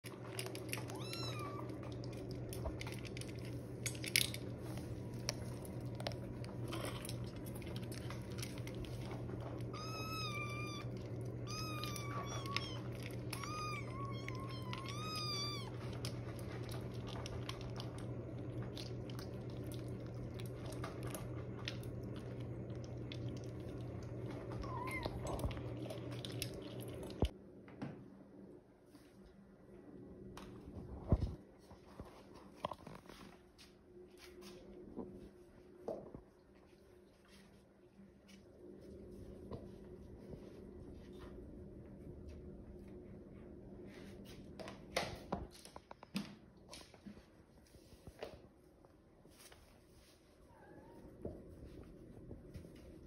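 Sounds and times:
kittens eating from metal bowl: 0.0s - 27.3s
steady low hum: 0.0s - 53.0s
kitten meows: 0.8s - 1.7s, 9.7s - 15.8s, 24.6s - 25.3s.

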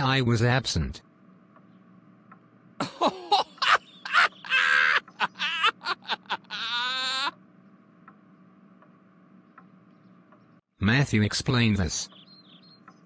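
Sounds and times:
person laughing loudly: 2.8s - 7.3s.

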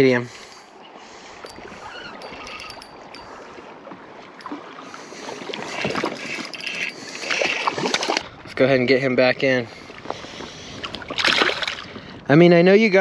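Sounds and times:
water lapping and splashing: 0.0s - 12.4s
fishing reel ticking: 1.4s - 3.6s, 5.2s - 8.2s.

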